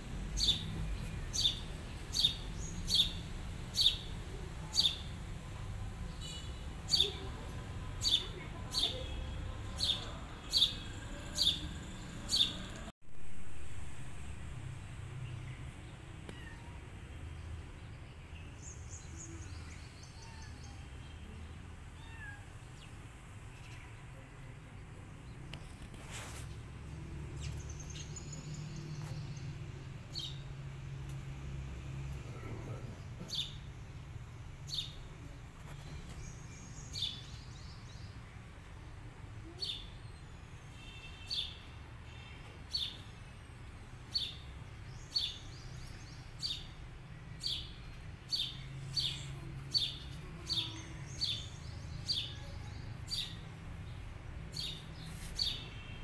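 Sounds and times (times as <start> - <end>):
bird chirping: 0.4 - 4.1, 8.0 - 12.9.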